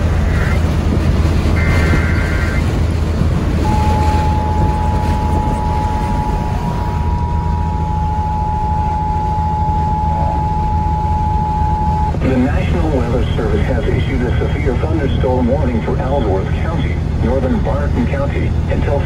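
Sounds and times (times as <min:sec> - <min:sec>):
road noise: 0:00.0 - 0:19.0
truck engine drone: 0:00.0 - 0:19.0
data tones burst: 0:01.6 - 0:02.8, 0:03.6 - 0:12.7
steady alert tone: 0:03.6 - 0:12.2.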